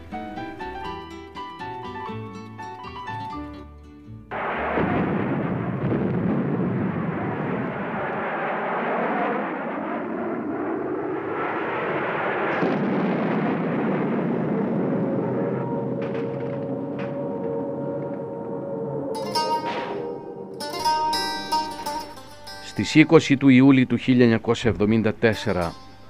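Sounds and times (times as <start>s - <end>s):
explosions and artillery fire: 4.3s - 18.1s
soft plucked-string music: 19.2s - 23.7s.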